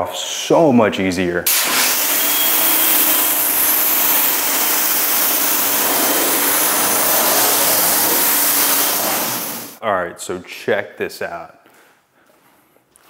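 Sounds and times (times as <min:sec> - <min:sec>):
pressure washer water jet hissing: 0:01.5 - 0:09.8
pump motor hum: 0:01.5 - 0:09.8.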